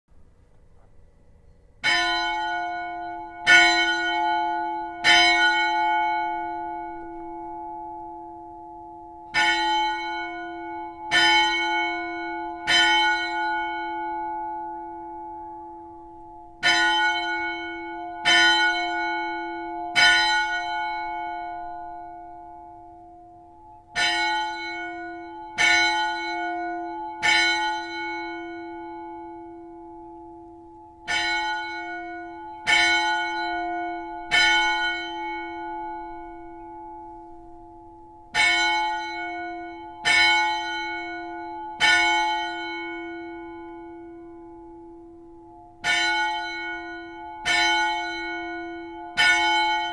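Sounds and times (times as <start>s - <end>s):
church bell strokes: 0.8s - 49.9s.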